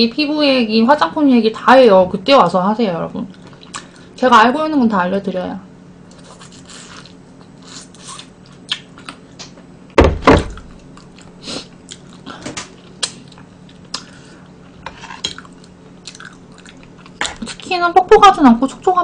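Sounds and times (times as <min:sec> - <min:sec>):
chewing: 0:06.1 - 0:09.2, 0:10.6 - 0:17.7
heavy thumps: 0:10.0 - 0:10.7.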